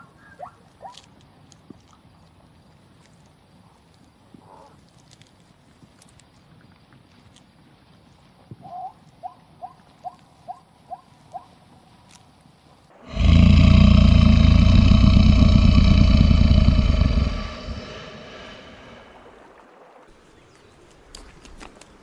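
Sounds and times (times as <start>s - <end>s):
crocodile deep bellow: 13.0s - 19.6s.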